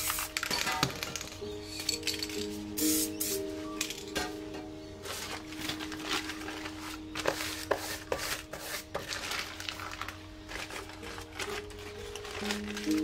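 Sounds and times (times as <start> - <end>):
plastic wrapper crinkling: 5.2 - 7.6, 9.0 - 13.0.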